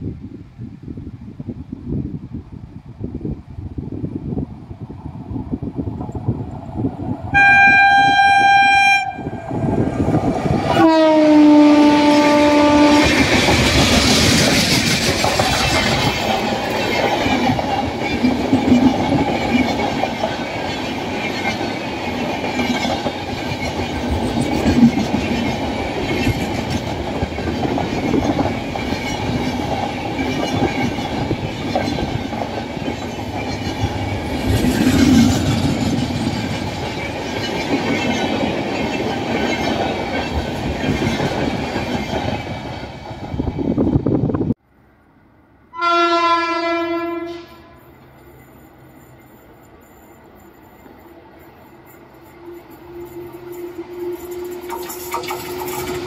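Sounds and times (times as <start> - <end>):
train wheels rattling on rails: 5.0 - 44.5, 47.8 - 56.0
locomotive horn: 7.3 - 9.4, 10.7 - 13.3, 45.7 - 47.9.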